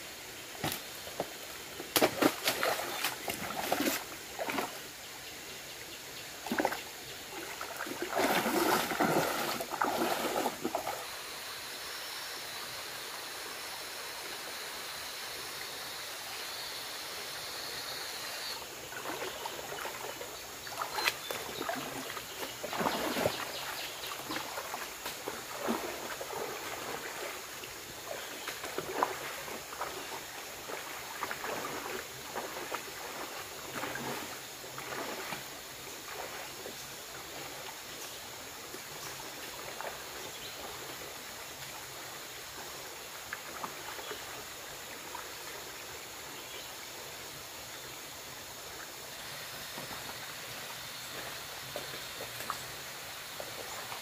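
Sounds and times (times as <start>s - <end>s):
stream water running: 0.0s - 54.0s
splashes and knocks: 0.6s - 4.8s, 7.6s - 11.0s, 20.7s - 23.6s, 30.7s - 35.4s.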